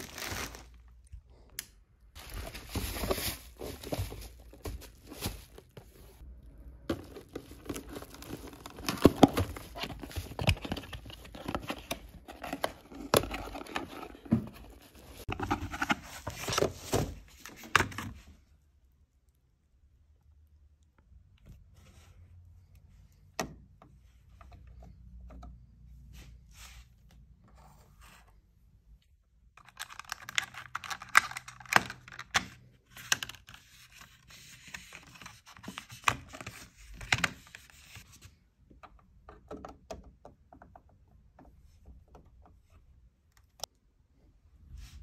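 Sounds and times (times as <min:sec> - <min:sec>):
plastic scraping and rustling: 0:02.2 - 0:06.2, 0:06.8 - 0:18.2.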